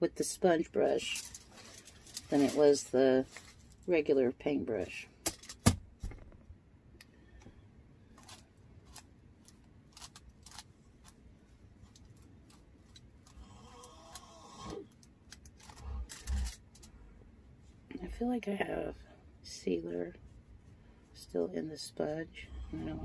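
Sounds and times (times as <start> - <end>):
soft low thumps: 6.0 - 6.6.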